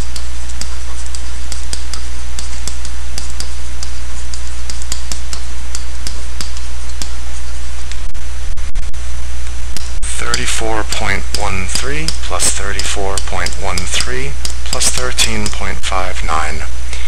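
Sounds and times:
stylus tapping on tablet: 0.0s - 7.5s, 9.8s - 15.8s
low electrical hum: 0.0s - 17.0s.

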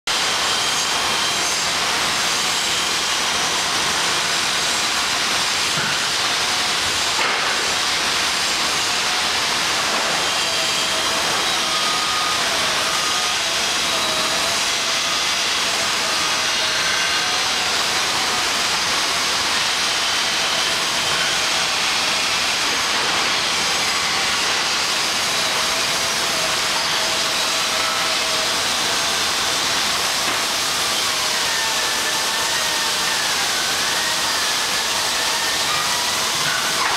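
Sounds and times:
industrial plant hiss: 0.1s - 36.9s.

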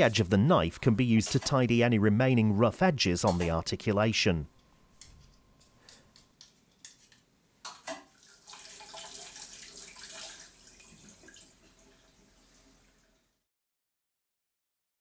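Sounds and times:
tap water running into sink: 7.7s - 13.3s.

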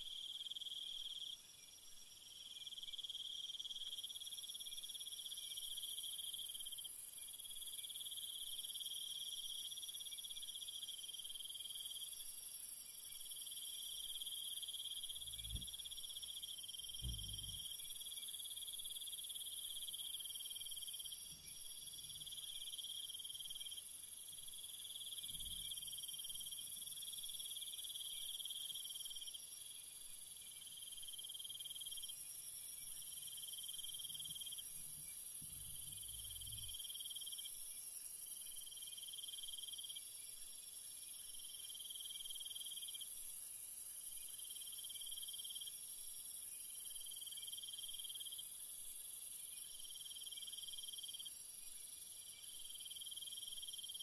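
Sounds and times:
insects chirring: 2.1s - 40.4s.

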